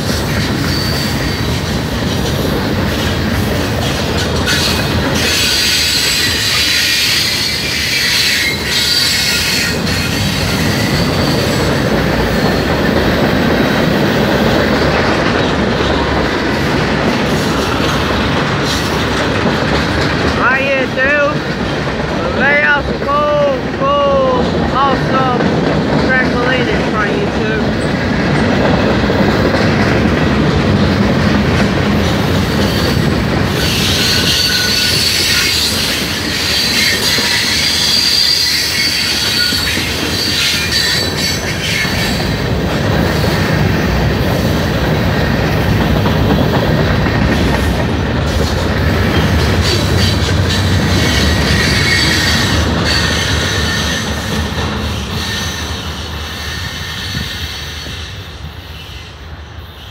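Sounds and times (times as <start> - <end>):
train wheels rumbling on rail: 0.0 - 59.9
high wheel squeal: 0.2 - 1.8, 3.8 - 12.8, 32.4 - 42.4, 49.2 - 59.9.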